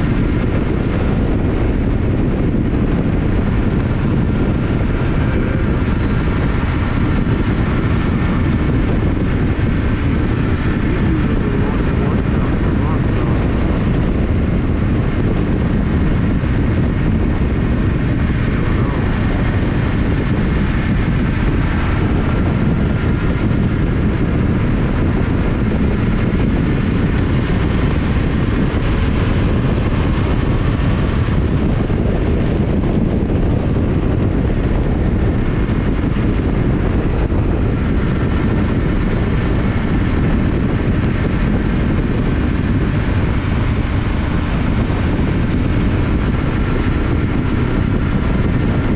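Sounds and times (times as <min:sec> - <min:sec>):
motorcycle engine cruising: 0:00.0 - 0:48.9
wind noise on microphone: 0:00.0 - 0:48.9.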